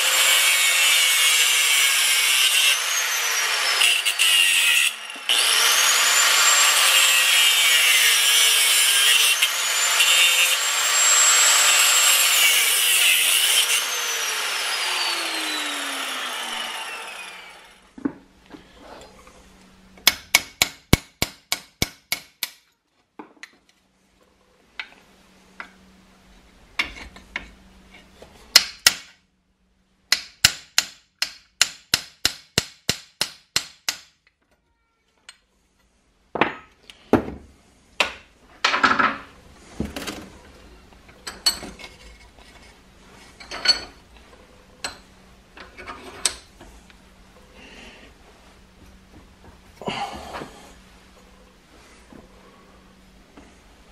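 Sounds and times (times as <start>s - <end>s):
angle grinder cutting steel: 0.0s - 17.9s
hammer striking steel punch: 20.0s - 22.6s, 30.1s - 34.1s.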